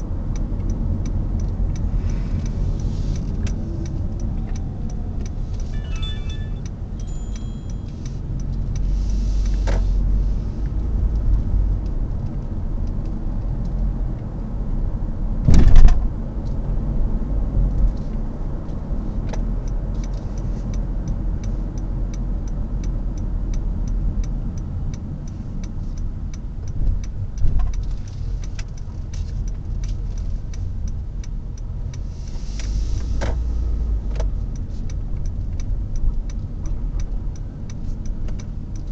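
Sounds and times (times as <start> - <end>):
car engine and tyre rumble: 0.0 - 38.9
loud thump: 15.4 - 16.0.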